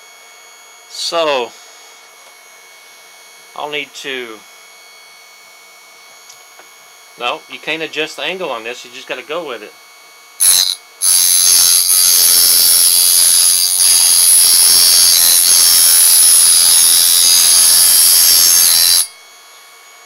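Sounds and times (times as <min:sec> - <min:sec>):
grinding wheel grinding knife: 0:10.4 - 0:20.0.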